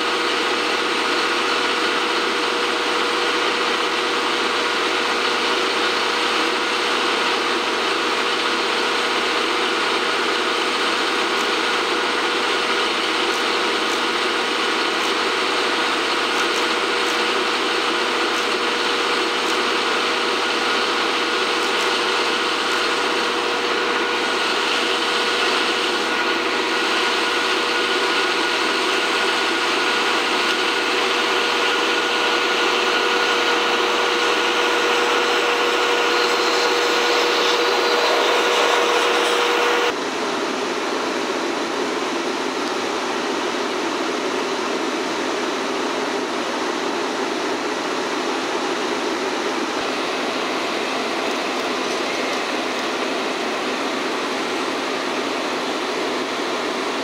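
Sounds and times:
steam locomotive hissing: 0.0 - 40.0.

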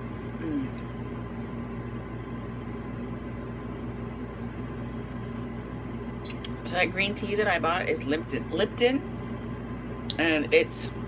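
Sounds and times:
appliance or fan humming: 0.0 - 11.0.

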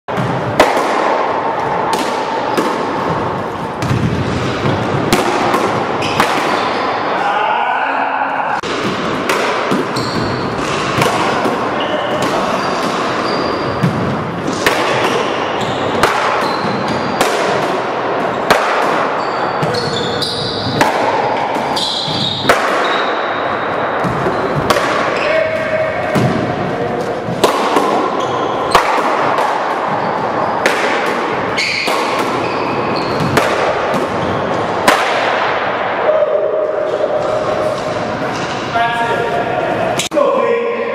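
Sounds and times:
ball hits echoing in court: 0.1 - 7.0, 8.6 - 36.0
shoe squeaks: 6.0 - 6.9, 9.9 - 10.8, 11.8 - 13.8, 15.4 - 17.3, 19.1 - 20.8, 21.7 - 25.4, 28.2 - 28.8, 29.9 - 30.6, 31.6 - 33.4, 34.2 - 34.6.

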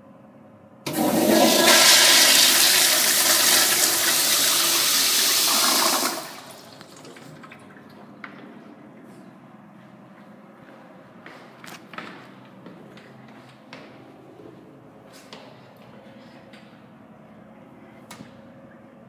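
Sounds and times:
toilet flushing: 0.9 - 8.3.

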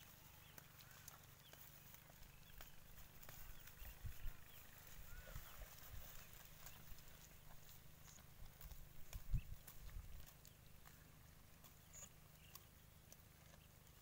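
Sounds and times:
rustling leaves and twigs: 0.0 - 14.0.

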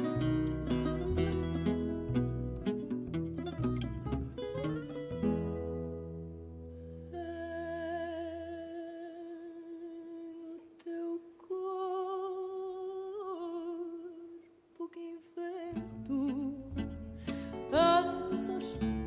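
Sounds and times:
plucked guitar chord: 0.0 - 7.0
woman singing: 7.1 - 19.0.

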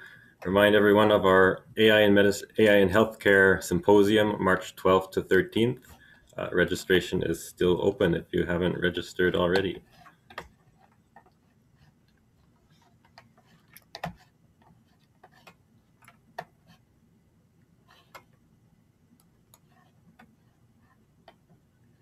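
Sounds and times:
low room hum: 0.0 - 22.0
faint clicks and taps: 9.5 - 16.8, 17.9 - 18.4, 19.1 - 22.0.

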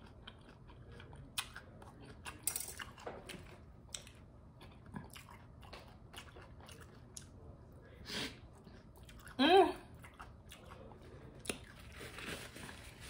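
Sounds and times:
chewing: 0.0 - 7.4, 8.3 - 13.0.

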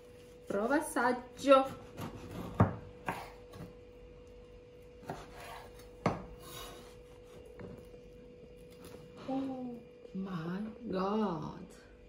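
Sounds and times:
knife scraping: 5.0 - 7.7.

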